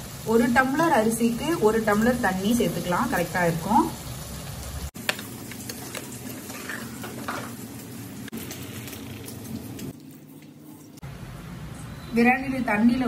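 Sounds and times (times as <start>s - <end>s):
food sizzling in a metal pot: 0.0s - 10.3s
metal spoon scraping pot: 6.4s - 7.5s
water pouring: 8.2s - 11.0s.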